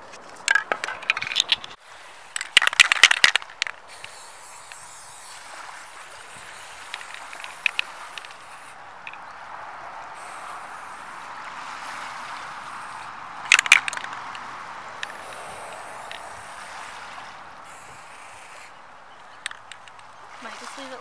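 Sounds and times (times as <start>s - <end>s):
spray paint can hissing: 1.8s - 3.3s, 3.9s - 8.8s, 10.2s - 11.3s, 11.9s - 14.1s, 15.0s - 17.0s, 17.7s - 18.7s
sharp clicks: 13.5s - 16.3s, 19.2s - 20.1s.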